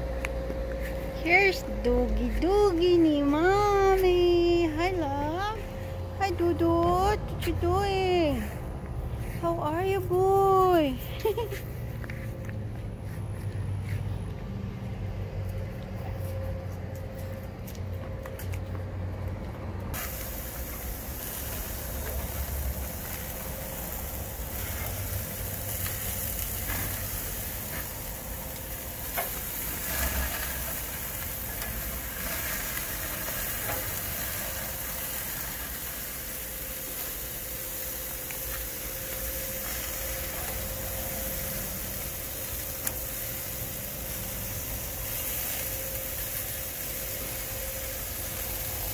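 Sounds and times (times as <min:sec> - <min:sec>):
skewers sizzling on a grill: 0:10.1 - 0:18.5, 0:19.9 - 0:48.9.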